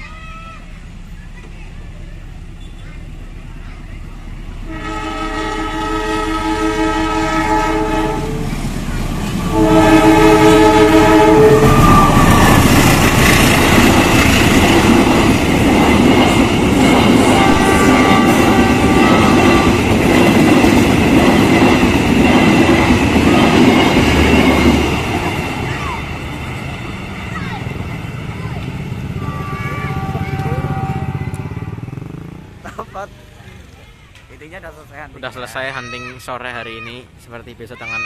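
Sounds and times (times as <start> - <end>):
train carriages rushing past: 0.0 - 38.0
train horn chord: 4.6 - 8.6, 9.5 - 12.7, 17.2 - 19.9, 29.2 - 31.7.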